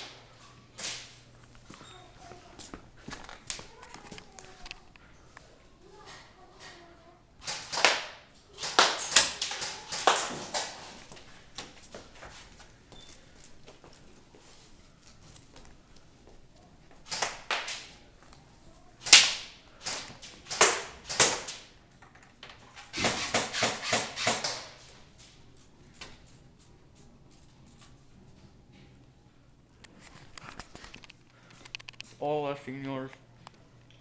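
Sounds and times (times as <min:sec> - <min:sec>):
airsoft gun shots: 0:07.4 - 0:10.8, 0:19.0 - 0:21.6, 0:22.9 - 0:24.7.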